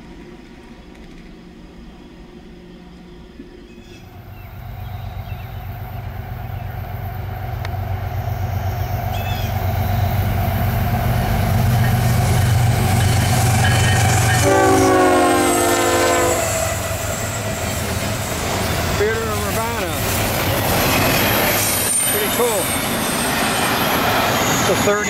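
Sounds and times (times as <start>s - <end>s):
diesel locomotive engine rumble: 0.0s - 25.0s
train air horn blast: 13.1s - 17.0s.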